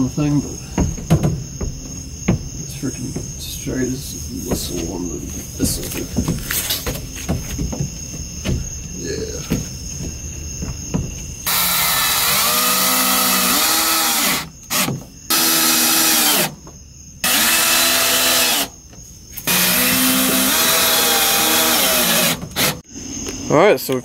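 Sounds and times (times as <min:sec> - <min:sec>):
cordless drill driving into wood: 0:11.4 - 0:16.6, 0:17.2 - 0:18.8, 0:19.4 - 0:22.8.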